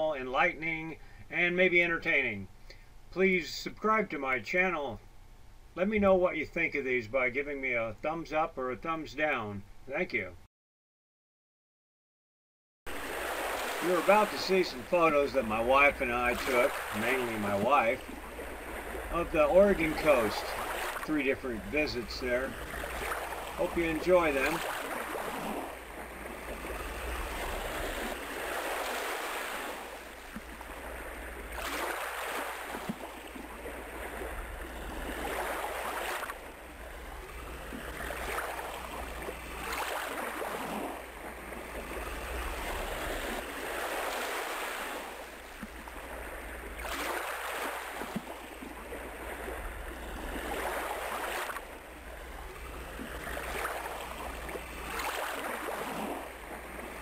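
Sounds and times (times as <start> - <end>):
waves breaking: 12.9 - 57.0.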